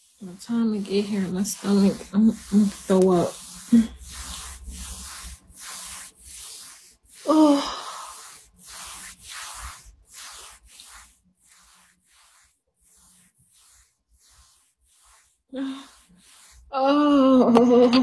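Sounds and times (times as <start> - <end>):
woman moaning: 7.3 - 8.0, 16.7 - 17.6.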